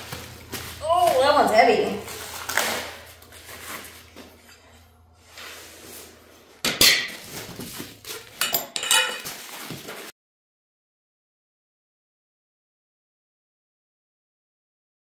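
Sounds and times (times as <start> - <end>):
rustling through foam packing: 0.0 - 4.4, 5.2 - 8.4, 9.2 - 10.1
metal parts clattering: 8.0 - 9.7.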